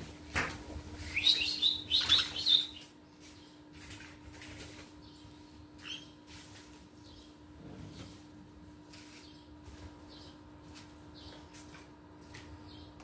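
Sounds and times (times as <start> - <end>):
parrots chirping: 1.0 - 2.9, 5.8 - 6.2.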